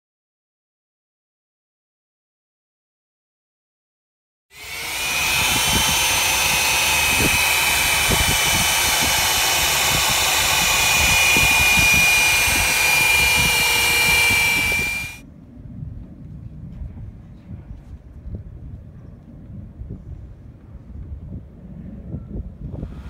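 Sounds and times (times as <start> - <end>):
electric polisher whine: 4.6 - 15.2
pad grinding on glass: 4.6 - 15.2.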